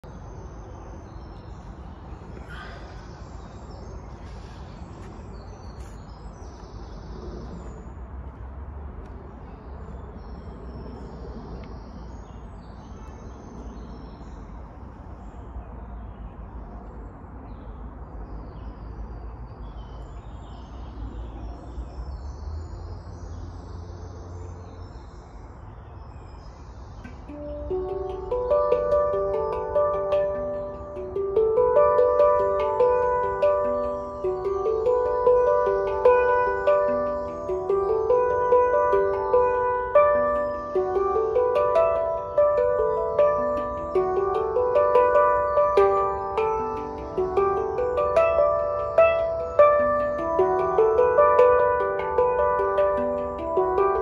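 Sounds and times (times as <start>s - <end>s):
birds chirping: 0.0s - 8.1s, 19.6s - 54.0s.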